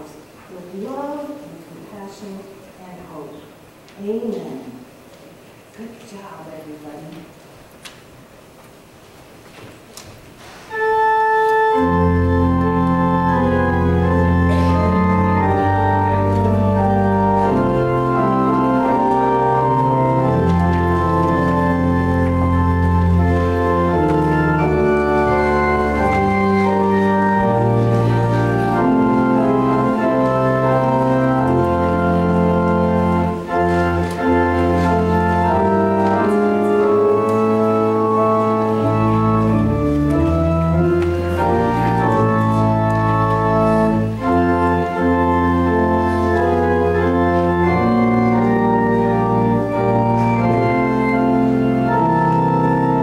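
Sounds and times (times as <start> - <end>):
church organ chords: 10.7 - 53.0.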